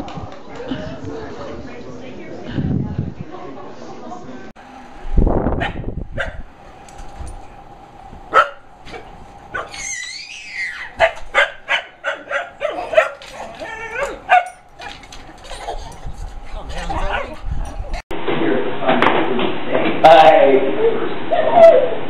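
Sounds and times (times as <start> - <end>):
dog barking and yipping: 5.6 - 6.5, 8.3 - 16.2, 16.9 - 17.5
dog whining: 8.4 - 16.2.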